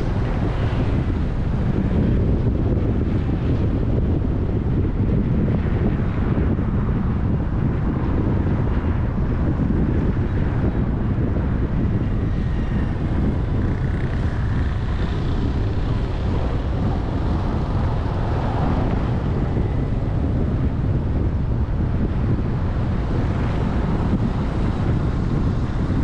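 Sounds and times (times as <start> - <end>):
motorbikes and cars running: 0.0 - 26.0
wind rumble on microphone: 0.0 - 26.0.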